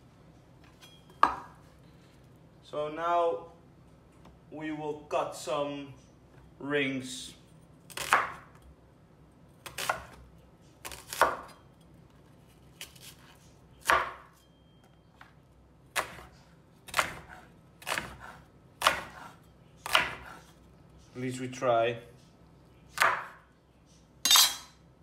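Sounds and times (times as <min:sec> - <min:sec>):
knife slicing onion on board: 0:07.9 - 0:08.6, 0:09.6 - 0:10.2, 0:10.8 - 0:11.6, 0:12.7 - 0:14.3, 0:15.9 - 0:20.6, 0:22.9 - 0:23.4.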